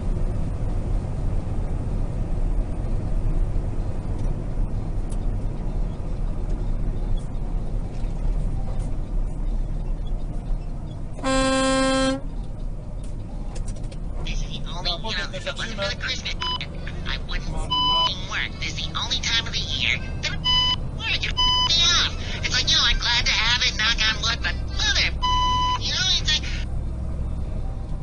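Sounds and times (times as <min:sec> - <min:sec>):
truck cab engine rumble: 0:00.0 - 0:28.0
truck horn blast: 0:11.2 - 0:12.4.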